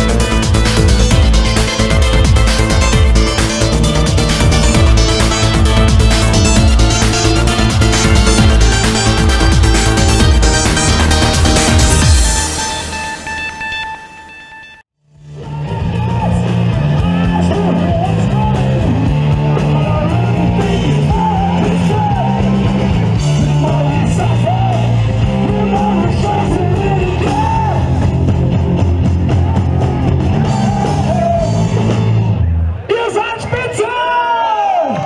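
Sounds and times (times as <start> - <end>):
live rock band playing: 0.0 - 14.3, 15.3 - 32.7
electronic music: 0.0 - 32.9
man singing: 15.3 - 28.0.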